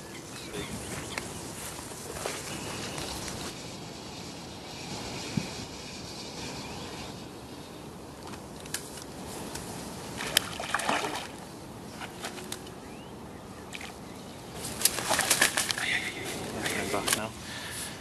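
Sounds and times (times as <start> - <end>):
fish splashing and thrashing: 10.2 - 12.7, 14.7 - 15.9.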